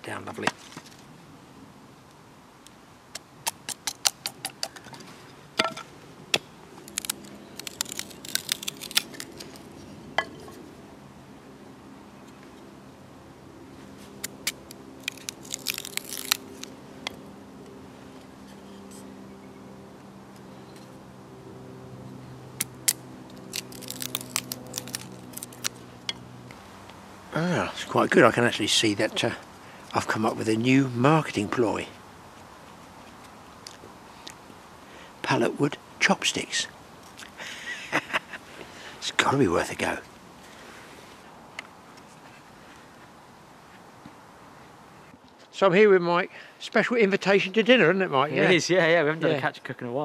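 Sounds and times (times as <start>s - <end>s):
knife splitting wood sticks: 3.2s - 10.6s, 14.1s - 16.7s, 22.6s - 26.2s.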